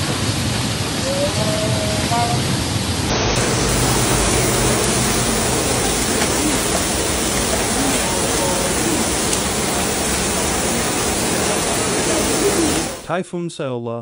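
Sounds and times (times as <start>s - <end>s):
floodwater rushing: 2.6s - 13.1s.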